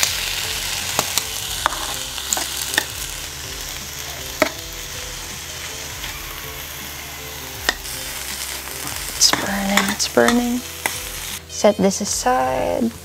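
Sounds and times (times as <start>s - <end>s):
food sizzling in a frying pan: 0.0s - 13.0s
metal chopsticks clicking on pan: 9.2s - 11.0s.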